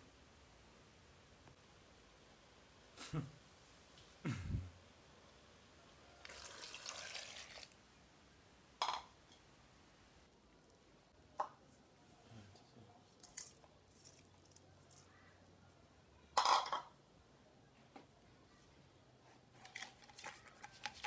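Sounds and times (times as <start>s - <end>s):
water pouring into saucepan: 6.2s - 7.8s.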